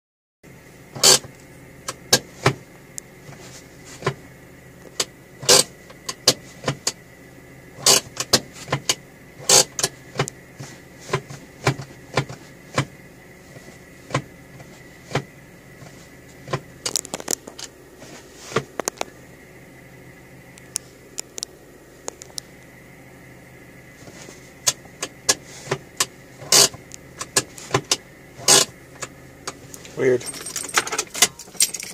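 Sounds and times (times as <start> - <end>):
parking brake lever ratcheting: 1.0 - 2.6, 5.0 - 7.0, 7.8 - 10.4, 24.6 - 31.9
clicks and knocks in car cabin: 1.0 - 4.2, 4.8 - 7.0, 7.8 - 17.8, 18.5 - 19.1, 24.0 - 31.9.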